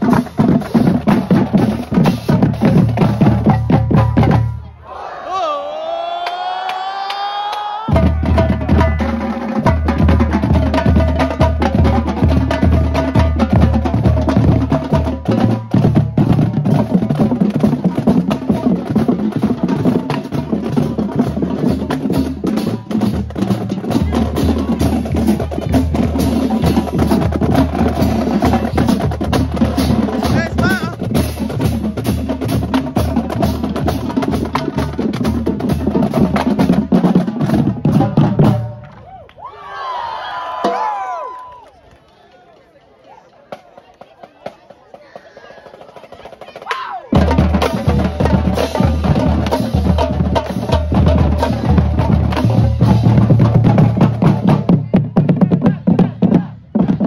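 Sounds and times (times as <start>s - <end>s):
snare drums: 0.0s - 4.6s, 7.9s - 38.9s, 43.5s - 57.0s
bass drums: 7.9s - 38.8s, 47.2s - 57.0s.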